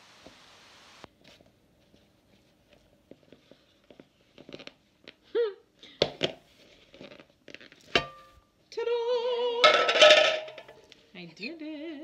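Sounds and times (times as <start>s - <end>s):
metal pan clinks and knocks: 8.0s - 8.4s, 9.6s - 10.8s.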